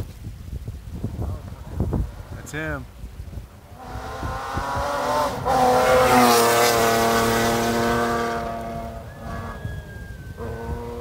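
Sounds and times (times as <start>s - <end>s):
rally car engine passing: 3.7s - 11.0s.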